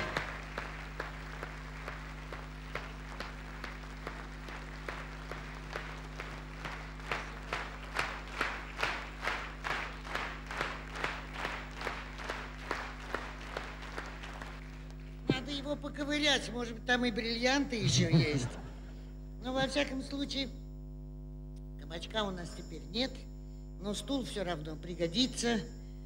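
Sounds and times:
audience applauding: 0.0 - 15.2
low electrical hum: 0.0 - 26.0.

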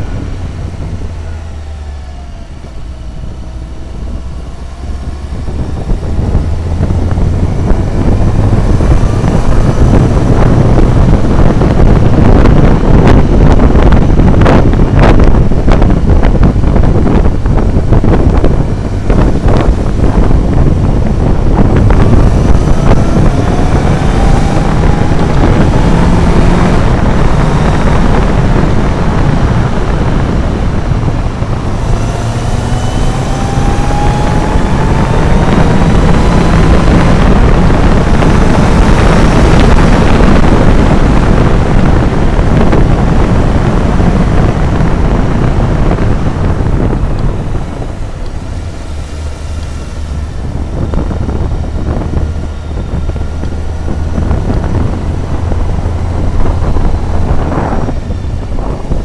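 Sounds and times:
motorcycle engine: 0.0 - 59.0
wind noise on microphone: 0.0 - 59.0.

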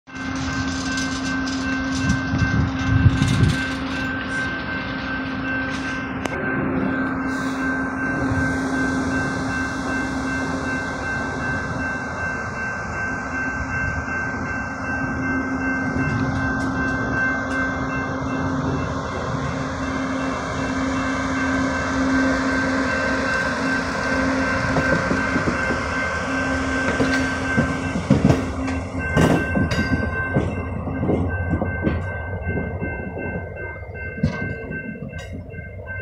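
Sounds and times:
steady train whine: 0.1 - 36.0
wheels clacking over rail joints: 23.1 - 35.6.

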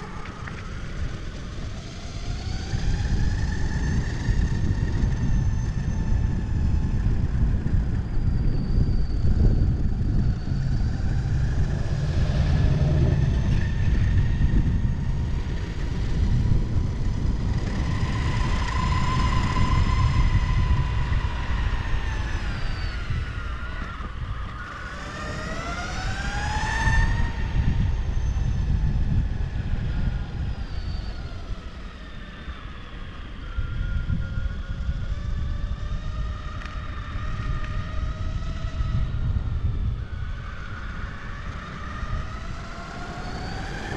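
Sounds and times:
skateboard wheels rolling on pavement: 0.0 - 4.2, 40.4 - 43.9
faint drifting tones: 0.0 - 28.9, 30.5 - 43.9.

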